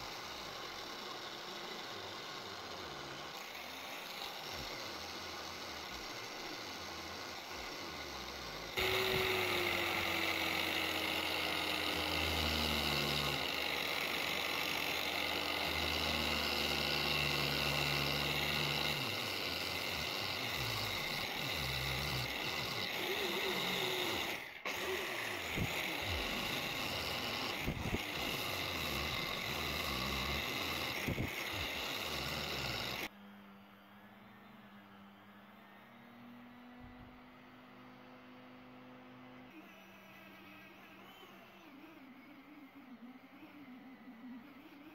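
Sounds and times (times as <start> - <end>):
angle grinder grinding steel: 0.0 - 33.1.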